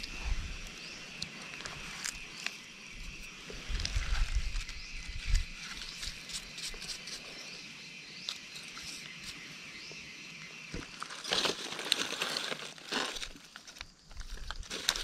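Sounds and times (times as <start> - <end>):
forest insects droning: 0.0 - 15.0
dry leaves rustling and crackling: 10.7 - 15.0.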